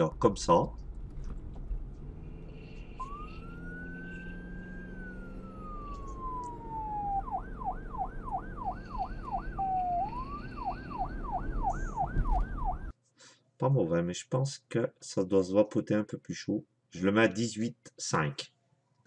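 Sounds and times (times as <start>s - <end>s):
emergency vehicle siren: 1.9s - 12.9s.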